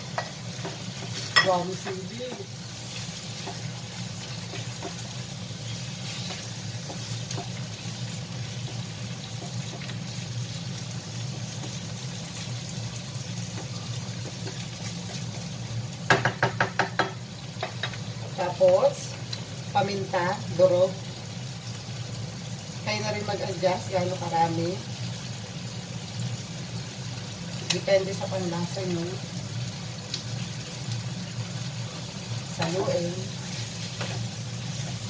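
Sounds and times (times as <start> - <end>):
food sizzling in a wok: 0.0 - 35.0
wooden spatula stirring: 0.6 - 10.2.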